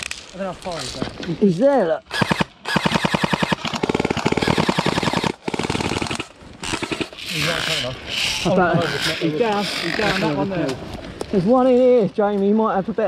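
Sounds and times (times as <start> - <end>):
airsoft rifle full auto bursts: 2.1 - 7.3.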